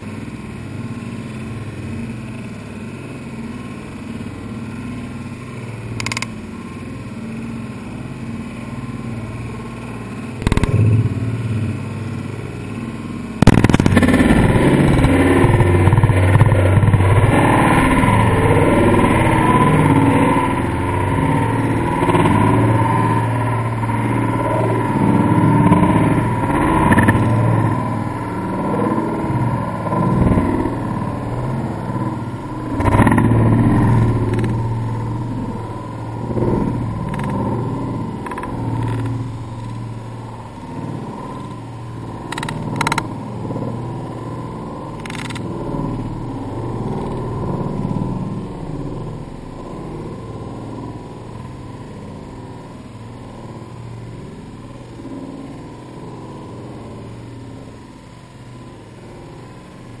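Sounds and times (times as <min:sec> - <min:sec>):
engine hum and road noise: 0:00.0 - 1:00.0
sharp clicks: 0:06.0 - 0:06.4, 0:10.4 - 0:11.0, 0:42.3 - 0:43.1, 0:45.0 - 0:45.5.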